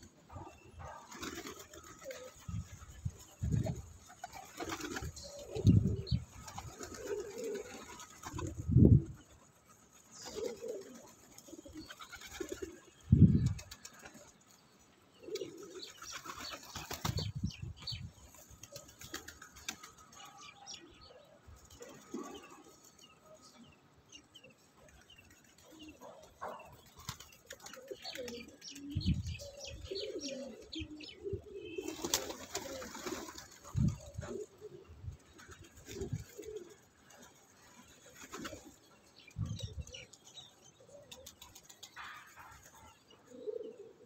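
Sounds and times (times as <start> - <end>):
pigeons cooing: 0.0 - 14.3, 15.2 - 18.0, 18.6 - 23.6, 25.5 - 44.0
wings flapping: 0.0 - 14.4, 15.3 - 17.5, 18.3 - 20.4, 26.5 - 28.9, 31.8 - 34.5, 35.2 - 38.8, 41.1 - 42.9.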